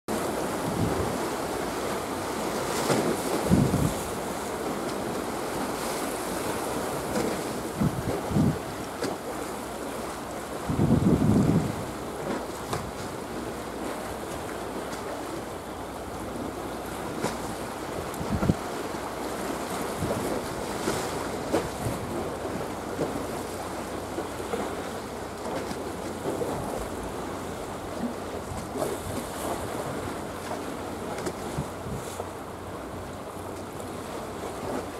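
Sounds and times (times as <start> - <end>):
waves on choppy sea: 0.1 - 34.9
wind: 0.1 - 34.9
wind buffeting microphone: 3.3 - 4.4, 7.0 - 8.8, 10.6 - 13.0, 18.0 - 18.7, 19.9 - 22.6, 31.4 - 32.2.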